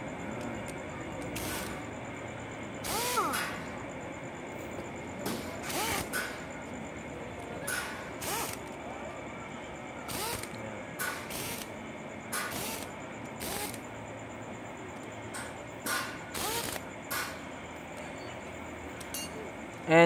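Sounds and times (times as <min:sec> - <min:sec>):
impact wrench bursts: 0:01.3 - 0:01.8, 0:02.8 - 0:03.7, 0:05.3 - 0:06.4, 0:07.7 - 0:08.7, 0:10.1 - 0:11.7, 0:12.3 - 0:13.9, 0:15.9 - 0:17.4.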